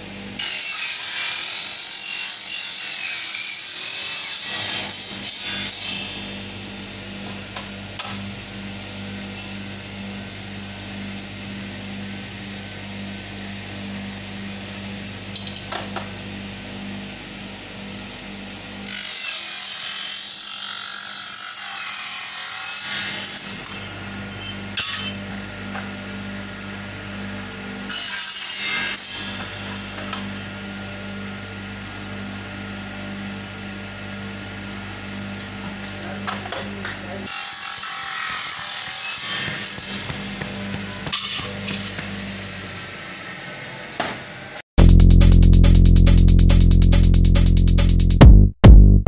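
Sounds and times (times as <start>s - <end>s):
saw cutting metal with high whine: 0.0s - 7.2s, 7.8s - 44.6s
cutting machine humming: 0.0s - 19.2s, 28.6s - 43.4s.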